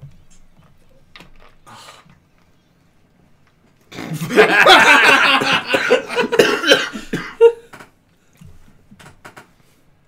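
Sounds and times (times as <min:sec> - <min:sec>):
man coughing hard: 0:04.0 - 0:07.6.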